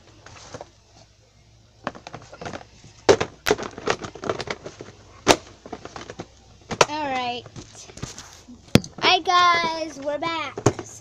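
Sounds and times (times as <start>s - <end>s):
plastic handling clicks and knocks: 1.8s - 7.7s.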